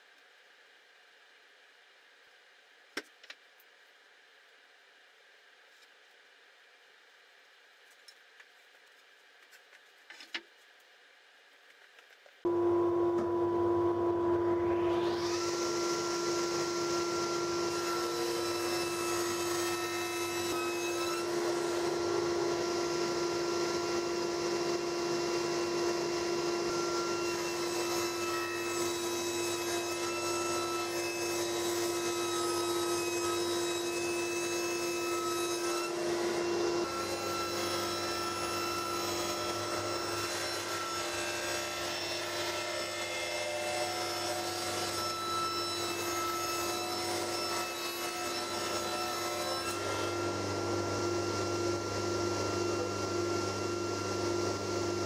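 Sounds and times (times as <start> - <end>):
saw blade whine: 12.5 - 55.0
table saw humming: 12.5 - 55.0
board fed through saw blade: 14.6 - 55.0.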